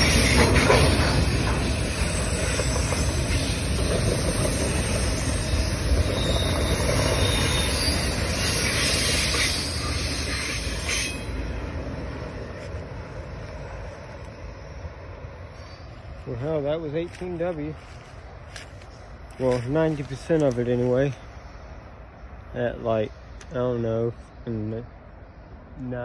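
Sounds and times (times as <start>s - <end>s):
high wheel squeal: 0.0s - 11.6s
train wheels rumbling on rail: 0.0s - 26.0s.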